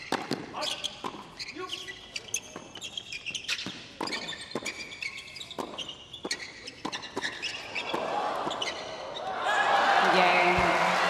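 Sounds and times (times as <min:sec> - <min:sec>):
shoes squeaking on court: 0:00.0 - 0:09.3
racket hitting ball: 0:05.5 - 0:08.6
crowd noise: 0:07.6 - 0:11.0.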